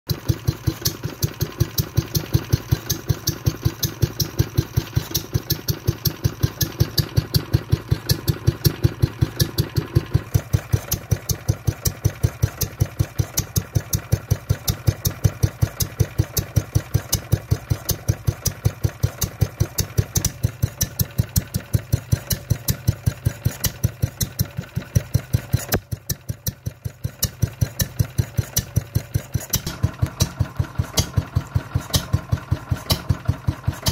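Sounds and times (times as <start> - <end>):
stationary petrol engine running: 0.1 - 33.9.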